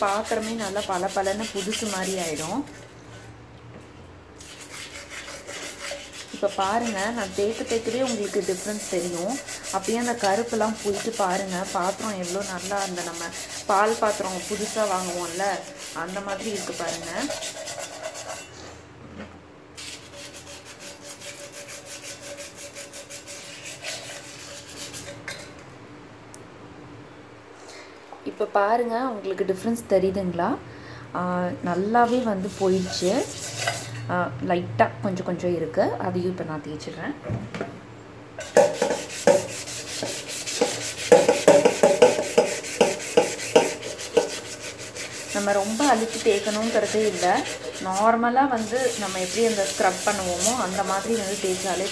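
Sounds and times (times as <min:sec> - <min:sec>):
sandpaper scrubbing metal pan: 0:00.0 - 0:02.6, 0:04.4 - 0:18.5, 0:19.8 - 0:25.2, 0:32.0 - 0:33.9, 0:38.4 - 0:51.9.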